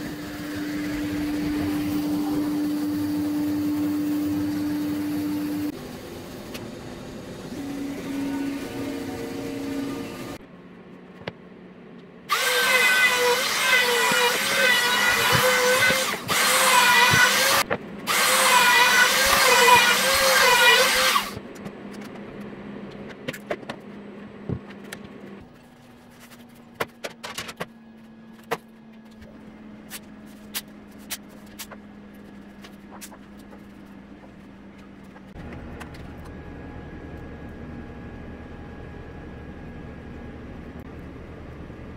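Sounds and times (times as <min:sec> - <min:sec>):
router spindle whine: 0:00.0 - 0:10.4, 0:12.3 - 0:21.4.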